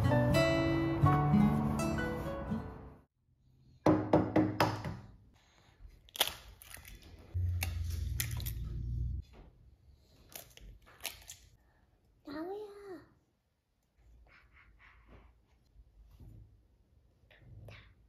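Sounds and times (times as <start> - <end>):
low hum: 7.4 - 9.3.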